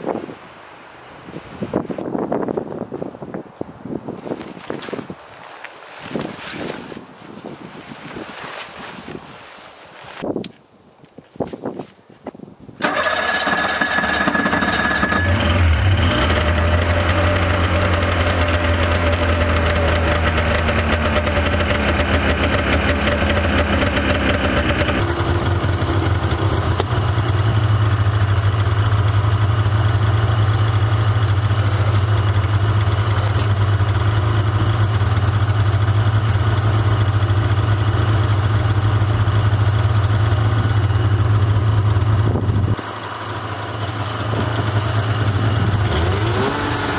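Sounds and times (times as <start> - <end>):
snowmobile engine idling: 12.8 - 46.9.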